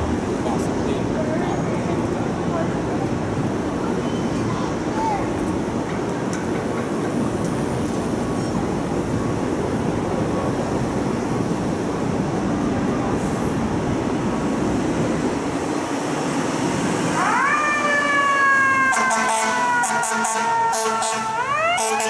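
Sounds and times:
city traffic: 0.0s - 22.0s
fire trucks idling: 0.0s - 22.0s
fire truck siren wailing: 17.0s - 22.0s.

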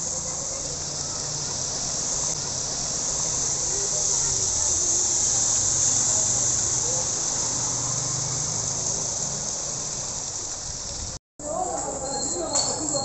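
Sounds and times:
steady rain: 0.0s - 13.0s.

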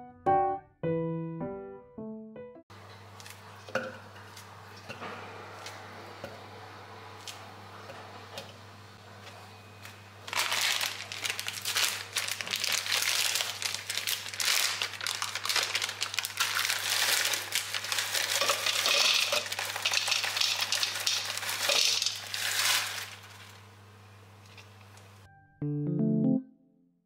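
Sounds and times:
plastic packet crinkling: 10.2s - 23.6s.

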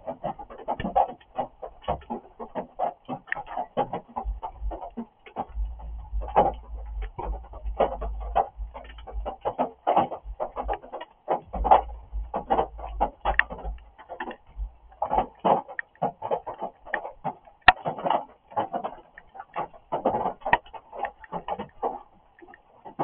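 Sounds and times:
rain drumming: 0.0s - 23.0s
sharp tick: 11.5s - 15.9s.

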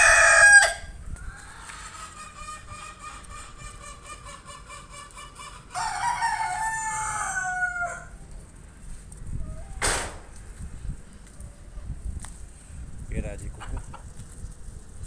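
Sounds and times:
rooster crowing: 0.0s - 0.9s, 5.7s - 8.2s.

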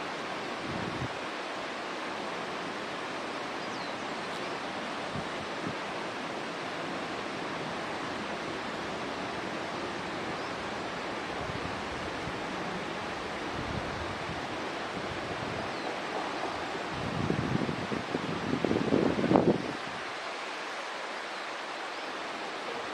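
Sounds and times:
rushing outdoor background noise: 0.0s - 22.9s
wind buffeting microphone: 16.6s - 20.0s.

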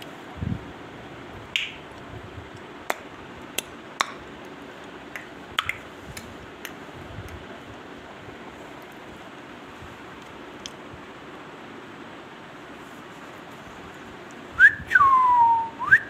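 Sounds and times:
parakeet beak clicking and tapping: 2.9s - 6.8s.

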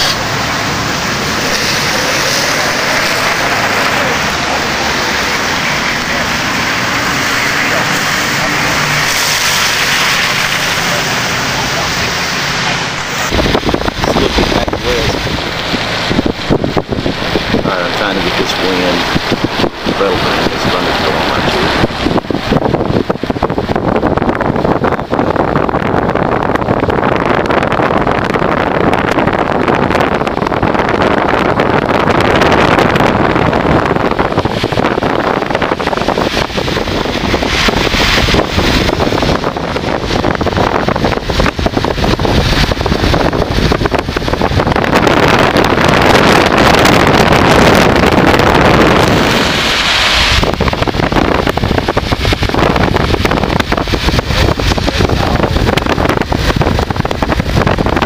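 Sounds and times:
gusty wind buffeting microphone: 0.0s - 58.0s.

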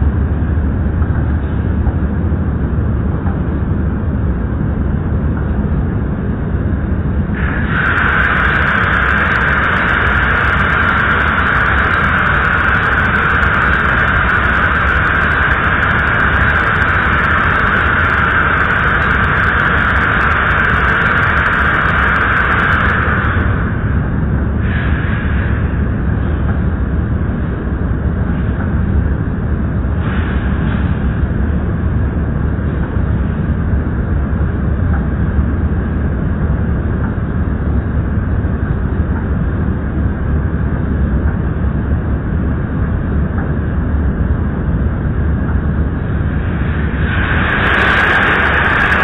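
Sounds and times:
machinery low drone: 0.0s - 49.0s
loud high hiss: 7.3s - 25.9s, 46.2s - 49.0s.

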